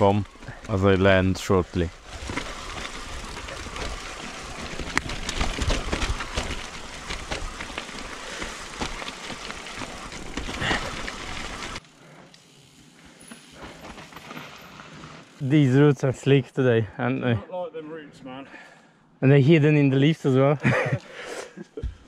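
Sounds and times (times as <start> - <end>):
mountain bike rumbling on dirt trail: 0.0 - 15.5
bike clicks and knocks: 2.2 - 11.8.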